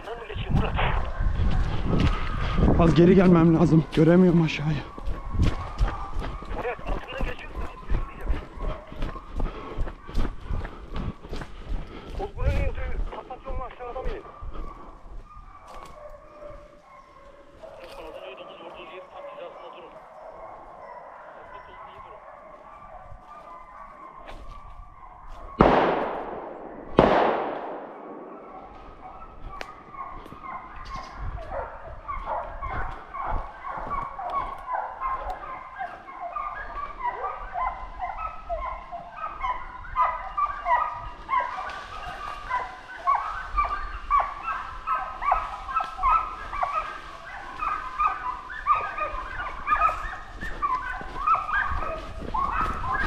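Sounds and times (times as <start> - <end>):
hunting dogs barking and baying: 0.0 - 53.0
gunshots: 25.6 - 29.0.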